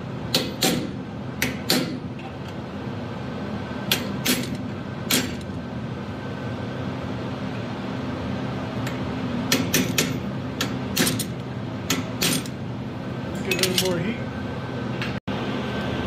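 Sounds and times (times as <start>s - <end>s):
steady hum: 0.0s - 16.0s
hammer striking steel: 0.3s - 2.0s, 9.5s - 11.3s.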